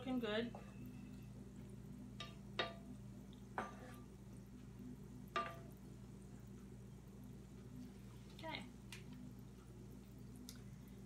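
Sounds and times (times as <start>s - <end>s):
donuts sizzling in oil: 0.0s - 11.0s
low hum: 0.0s - 11.0s
wooden tongs knocking pan: 2.2s - 2.9s, 5.3s - 5.8s.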